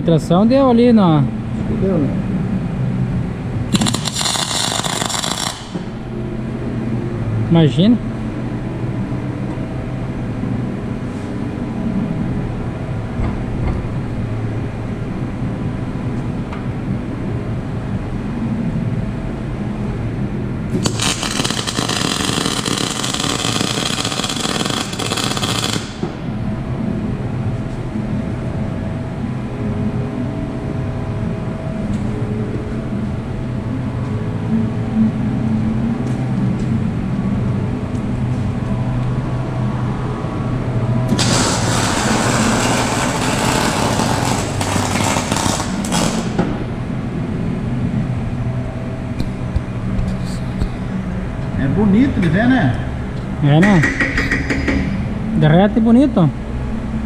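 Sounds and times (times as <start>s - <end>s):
low hum: 0.0s - 57.0s
welding arc crackling: 3.7s - 6.1s, 20.8s - 26.2s, 41.1s - 46.4s.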